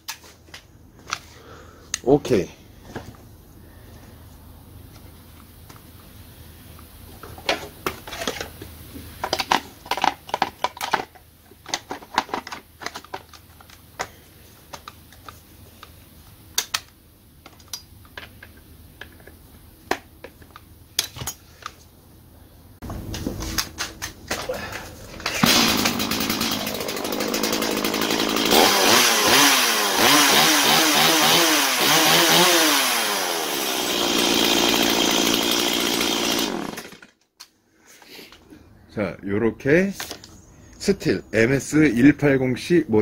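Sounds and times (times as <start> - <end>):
chainsaw engine starting: 25.2 - 37.2.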